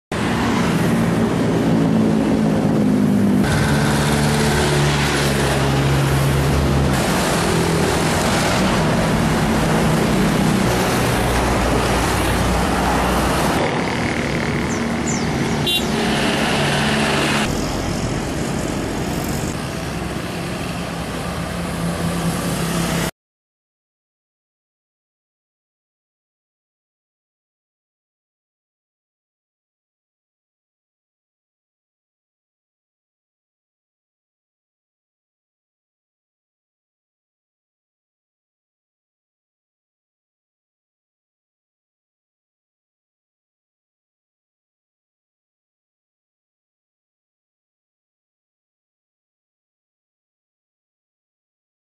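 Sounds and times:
cars passing: 0.1s - 23.1s
motorbikes passing: 0.1s - 23.1s.

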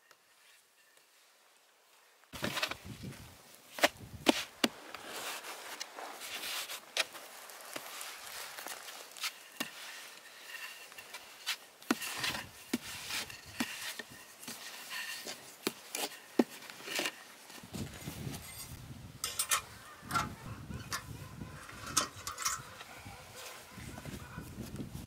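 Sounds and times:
dough being rolled out: 4.2s - 18.6s.

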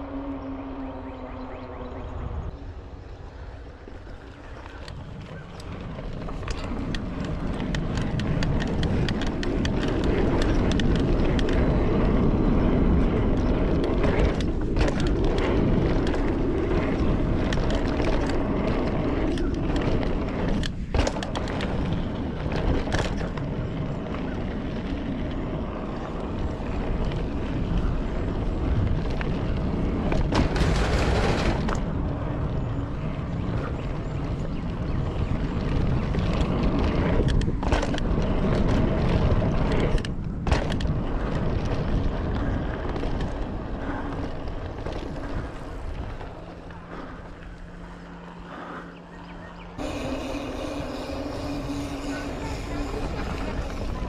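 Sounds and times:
wind rumbling on microphone: 0.0s - 54.0s
tyres rolling on dirt: 2.5s - 48.7s, 49.8s - 54.0s
bike clicks and rattles: 2.9s - 54.0s.

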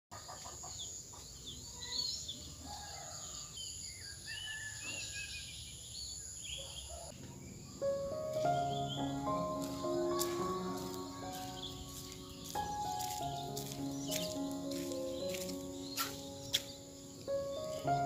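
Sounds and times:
small birds chirping: 0.2s - 18.0s
music: 7.8s - 18.0s.

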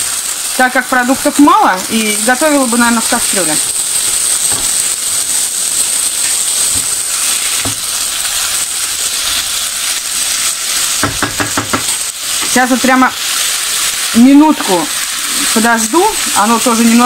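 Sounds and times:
vegetables sizzling in frying pan: 0.0s - 17.0s
wooden spatula knocking on pan: 11.0s - 12.0s.

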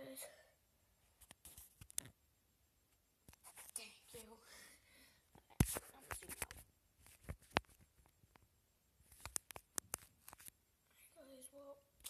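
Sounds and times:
sharp clicks and taps: 9.1s - 10.5s.

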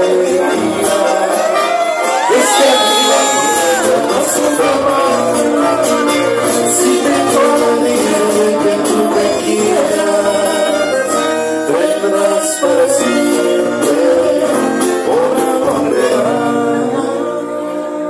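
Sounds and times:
man singing into a microphone: 0.0s - 18.0s
strummed acoustic guitars: 0.0s - 18.0s.

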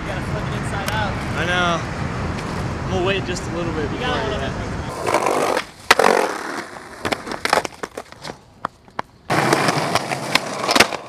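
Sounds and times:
skateboard clacking on pavement: 4.9s - 11.0s
skateboard wheels rolling: 4.9s - 11.0s.

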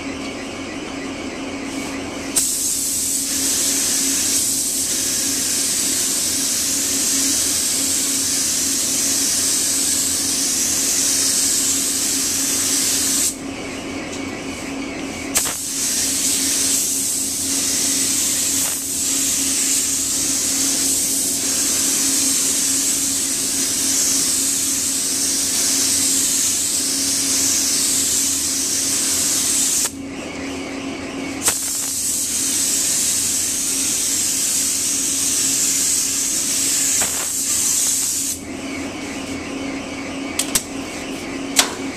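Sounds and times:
spray gun hissing: 2.4s - 13.4s, 15.3s - 30.0s, 31.4s - 38.4s
spray gun pop: 15.4s - 16.1s, 31.4s - 32.5s, 36.6s - 38.3s.

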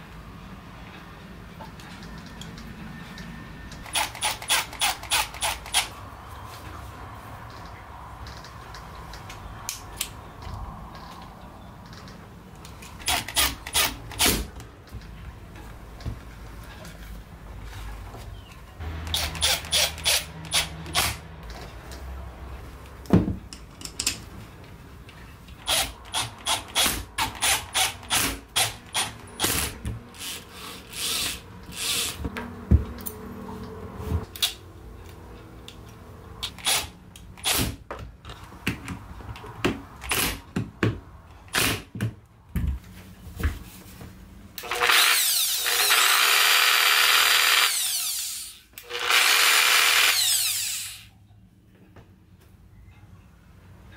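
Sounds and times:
cordless drill whirring: 25.6s - 32.2s, 44.6s - 51.1s
angle grinder spinning up: 44.6s - 51.1s.

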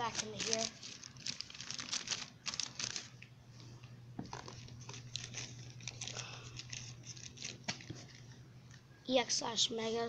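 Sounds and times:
paper rustling and crinkling: 0.0s - 3.2s, 4.3s - 8.3s.

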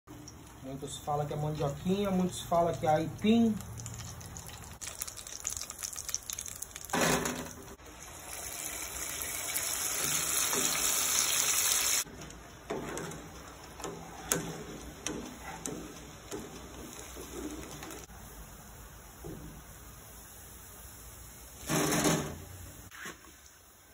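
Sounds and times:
oil sizzling in a pot: 0.1s - 12.1s, 12.7s - 23.9s
oil bubbling with pops: 3.3s - 11.4s, 12.7s - 18.1s.

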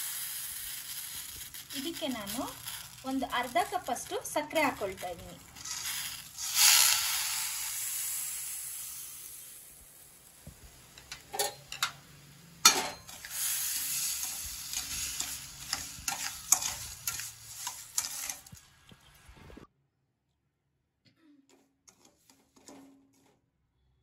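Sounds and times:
sugar pouring into pan: 0.0s - 11.0s, 13.1s - 18.6s
spatula scraping pan: 12.7s - 18.6s, 21.9s - 23.4s.

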